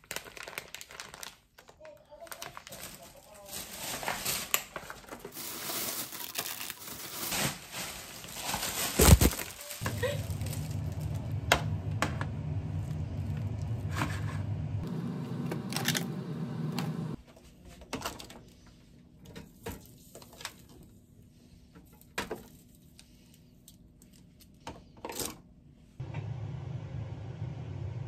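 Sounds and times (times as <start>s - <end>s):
steady low hum: 9.8s - 17.2s.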